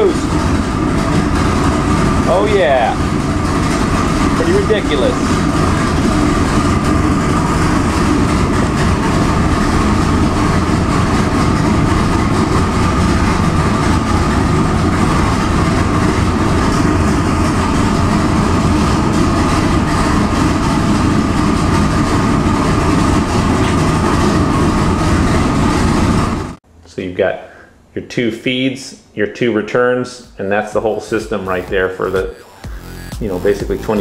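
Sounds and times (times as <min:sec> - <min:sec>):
engine idling with whine: 0:00.0 - 0:26.6, 0:30.2 - 0:34.0.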